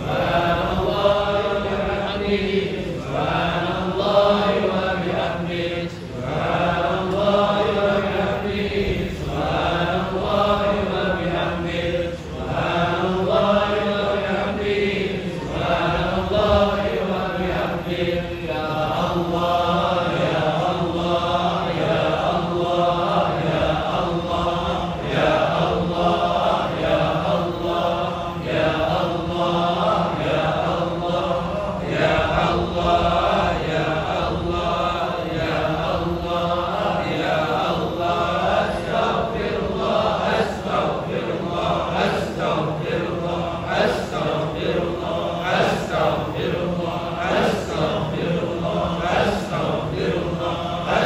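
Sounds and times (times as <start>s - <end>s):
congregation chanting in unison: 0.0s - 51.0s.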